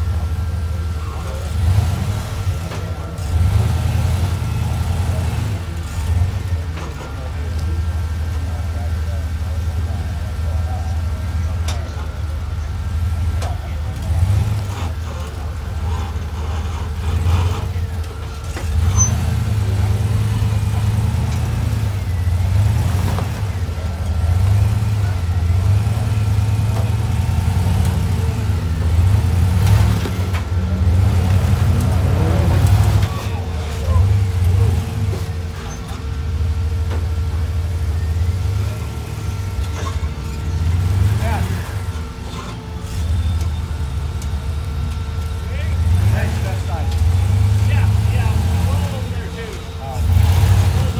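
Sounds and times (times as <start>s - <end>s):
buggy engine rumbling: 0.0s - 50.9s.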